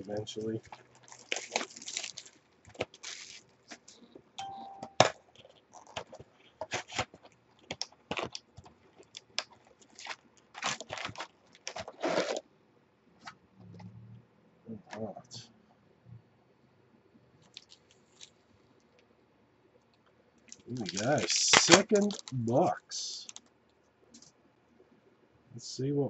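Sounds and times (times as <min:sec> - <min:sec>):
cardboard and wrappers crinkling: 0:00.0 - 0:04.2, 0:05.0 - 0:12.4, 0:17.4 - 0:18.4, 0:20.5 - 0:23.4.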